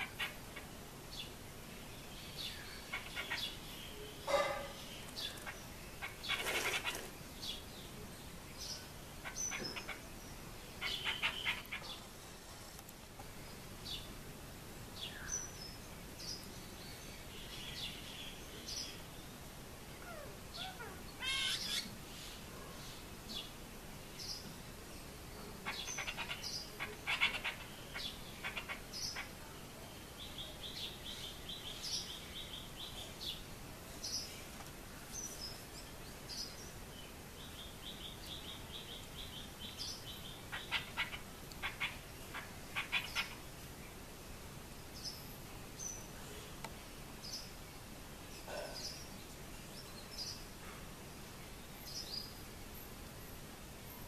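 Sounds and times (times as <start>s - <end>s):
starlings chirping: 0.0s - 7.9s, 8.5s - 12.6s, 15.0s - 23.5s, 25.6s - 29.4s, 35.1s - 44.0s.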